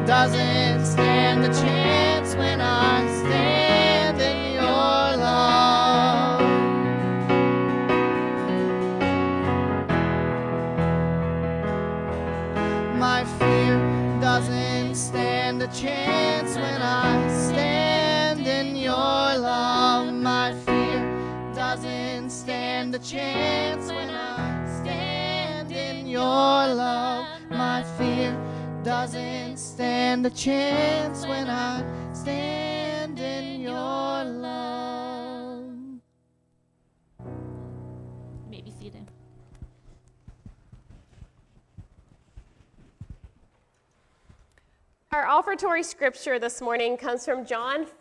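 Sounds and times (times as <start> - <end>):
woman singing: 0.0 - 6.4, 13.0 - 36.0
keyboard: 0.0 - 35.8
acoustic guitar: 0.0 - 36.1.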